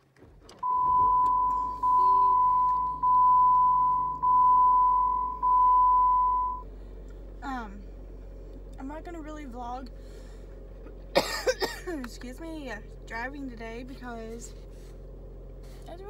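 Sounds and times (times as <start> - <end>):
low vehicle hum: 0.0 - 16.0
car warning chime beeping: 0.6 - 6.7.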